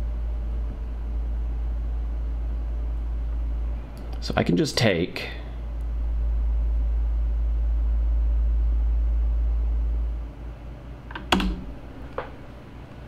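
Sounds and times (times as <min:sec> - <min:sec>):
low rumble: 0:05.6 - 0:10.5.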